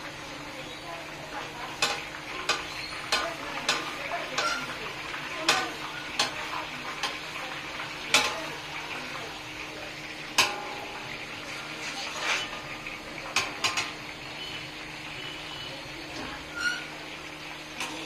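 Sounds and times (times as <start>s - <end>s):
food sizzling in hot oil: 0.0s - 18.0s
metal ladle clanking and scraping pan: 1.7s - 4.8s, 8.1s - 8.5s, 10.3s - 14.0s.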